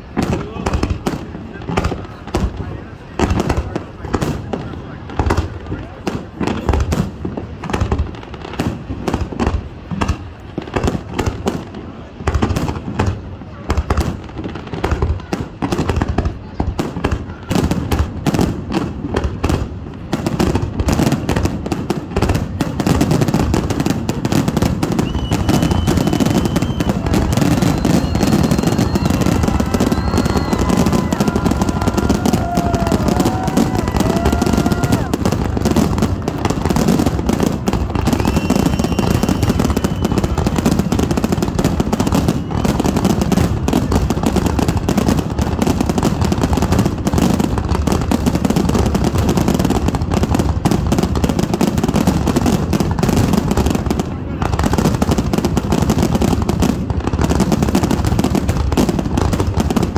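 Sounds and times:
fireworks bursts and crackle: 0.0 - 59.9
high whistling tones: 25.0 - 30.9.

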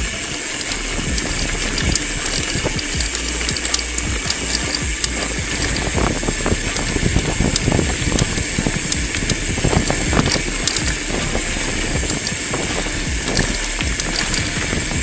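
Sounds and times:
bike rattling and knocking: 0.0 - 15.0
bike tyres crunching on gravel: 0.0 - 15.0.

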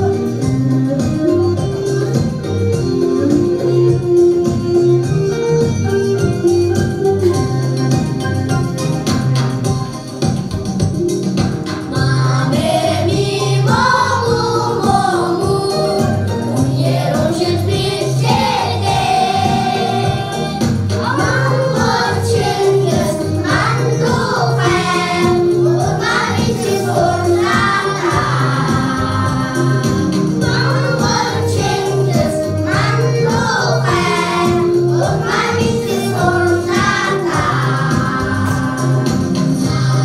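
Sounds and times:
backing music with bass beat: 3.8 - 40.0
children singing: 11.9 - 40.0.

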